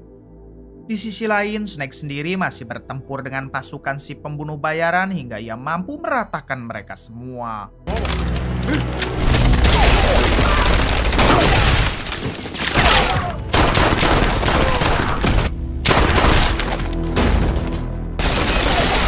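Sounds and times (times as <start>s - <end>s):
film music score: 0.0s - 19.0s
rapid gunfire and impacts: 9.2s - 19.0s.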